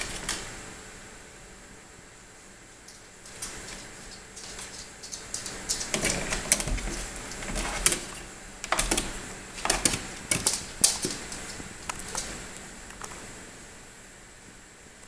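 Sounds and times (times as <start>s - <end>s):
dog claws tapping on stairs: 0.0s - 0.4s, 2.9s - 12.4s.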